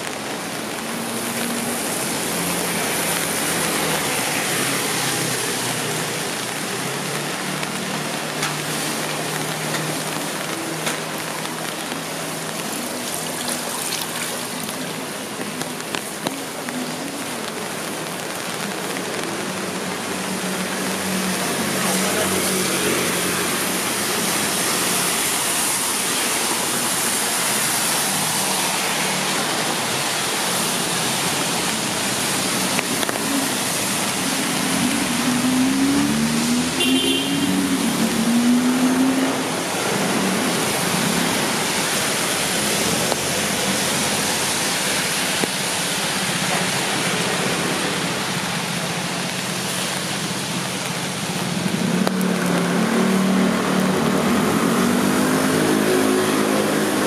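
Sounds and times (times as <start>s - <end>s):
rain hissing: 0.0s - 57.0s
traffic on wet streets: 0.0s - 57.0s.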